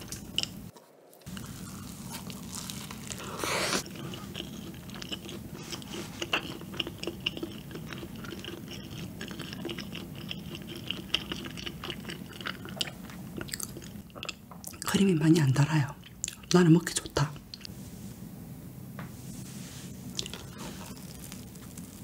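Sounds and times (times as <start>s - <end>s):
chewing with wet mouth smacks: 3.8s - 15.0s
steady low hum: 15.4s - 22.0s.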